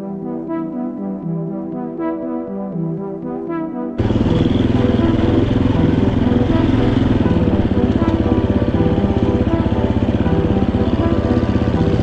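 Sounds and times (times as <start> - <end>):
dirt bike engine running: 4.0 - 12.0.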